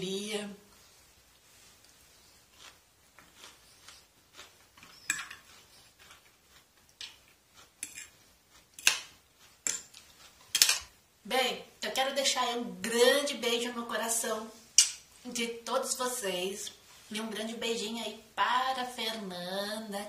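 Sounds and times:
fork scraping a plate: 0:02.5 - 0:10.9.

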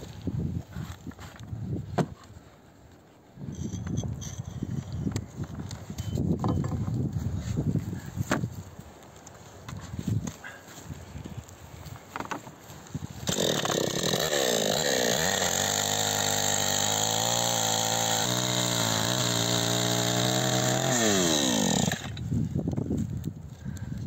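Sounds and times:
chainsaw cutting log: 0:13.1 - 0:22.3.

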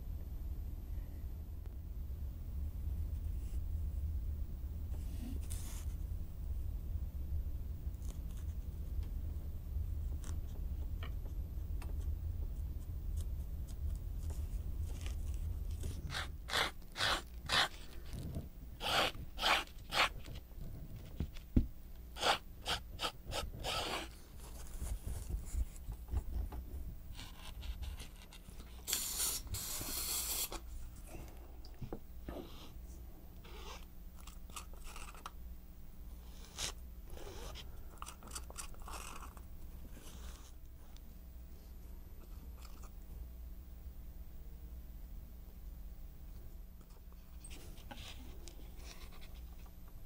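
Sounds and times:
low steady hum: 0:00.0 - 0:50.0
aerosol spray hiss: 0:28.9 - 0:30.6.

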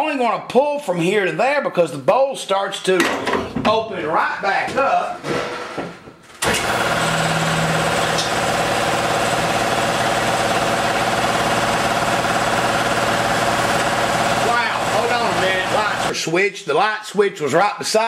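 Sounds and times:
machine motor droning: 0:06.4 - 0:16.1.

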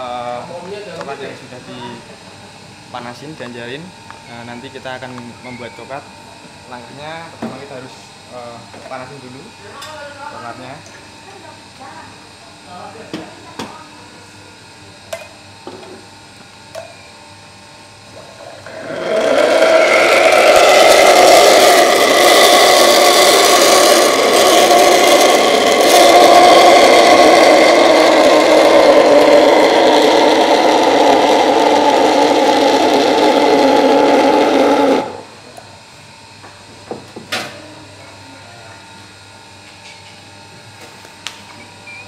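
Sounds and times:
espresso steam wand hissing: 0:18.1 - 0:35.4.

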